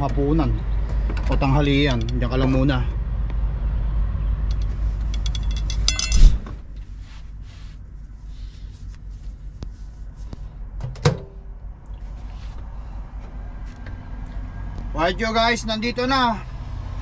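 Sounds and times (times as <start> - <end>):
steady outside rumble: 0.0 - 17.0
rattle of clicks: 4.5 - 6.2.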